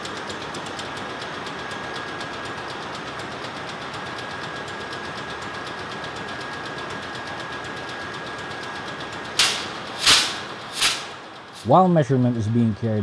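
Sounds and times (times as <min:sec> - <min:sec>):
fast even engine ticking: 0:00.0 - 0:13.0
steady high whine: 0:08.3 - 0:13.0.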